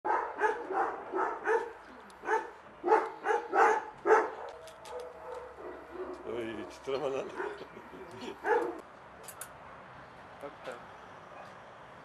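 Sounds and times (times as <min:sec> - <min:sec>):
dog barking: 0:00.1 - 0:06.3, 0:07.3 - 0:07.7, 0:08.4 - 0:08.8.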